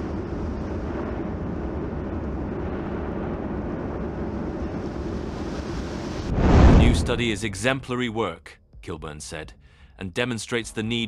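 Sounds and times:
volcanic eruption rumbling: 0.0 - 7.6.

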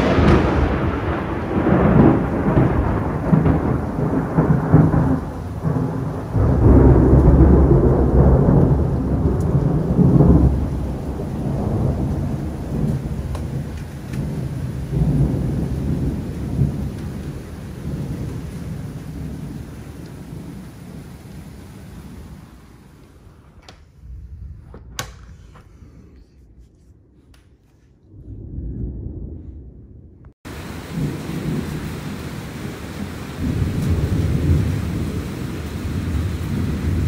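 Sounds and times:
heavy rain: 0.0 - 24.8, 30.4 - 37.0
thunder rolling: 0.0 - 37.0.

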